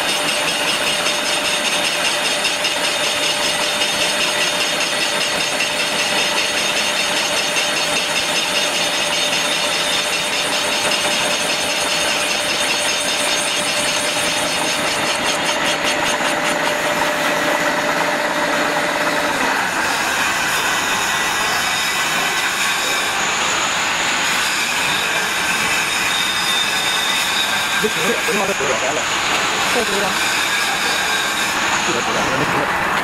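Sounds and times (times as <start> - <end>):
steady machine hum: 0.0 - 25.7
machine cutting metal: 0.0 - 33.0.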